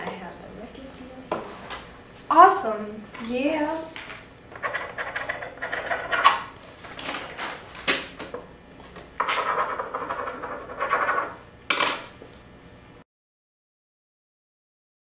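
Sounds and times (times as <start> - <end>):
pen and papers clattering: 3.8 - 12.1.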